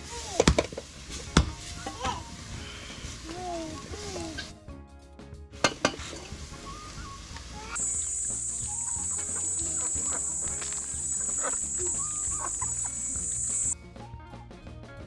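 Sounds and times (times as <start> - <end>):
steady high hiss: 6.2 - 13.8
guineafowl clucking calls: 6.8 - 13.8.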